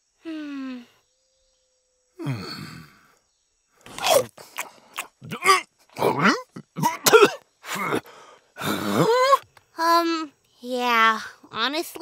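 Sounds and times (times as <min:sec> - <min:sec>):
crunchy biting and chewing: 0:03.9 - 0:05.5
muffled vocal grunts: 0:05.0 - 0:09.2.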